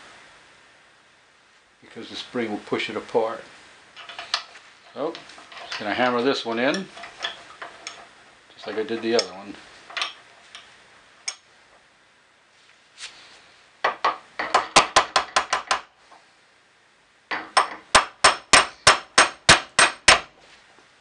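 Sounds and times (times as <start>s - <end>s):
hammer tapping: 13.9s - 15.9s.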